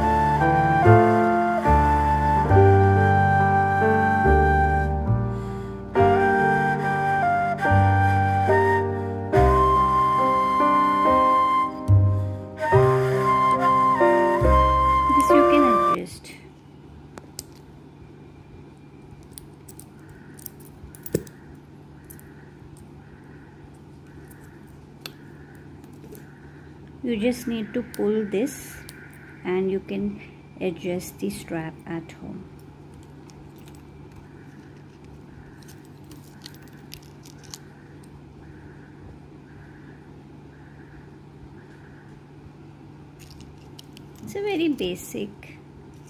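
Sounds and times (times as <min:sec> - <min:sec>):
steady low hum: 0:14.5 - 0:46.0
wristwatch strap clicks and rattles: 0:19.2 - 0:21.4, 0:32.6 - 0:38.2, 0:43.2 - 0:44.3.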